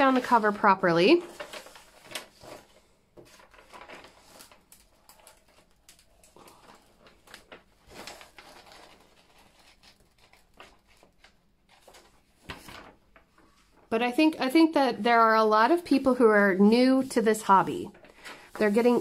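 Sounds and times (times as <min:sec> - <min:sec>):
hand smoothing paper: 0:00.0 - 0:02.7, 0:16.6 - 0:19.0
paper sheet rustling and crinkling: 0:00.0 - 0:19.0.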